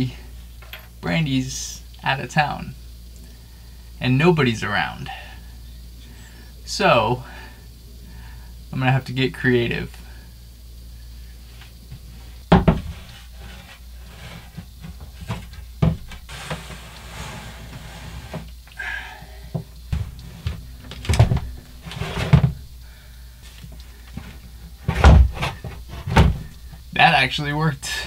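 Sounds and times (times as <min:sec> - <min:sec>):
heavy object knocking and thumping: 0:12.5 - 0:13.1, 0:15.2 - 0:16.2, 0:19.6 - 0:22.7, 0:24.2 - 0:26.6
scraping over plywood: 0:12.6 - 0:18.5, 0:19.9 - 0:22.7.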